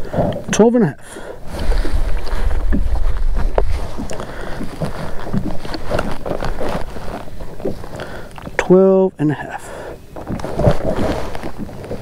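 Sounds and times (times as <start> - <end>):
wind buffeting microphone: 1.4 - 8.6.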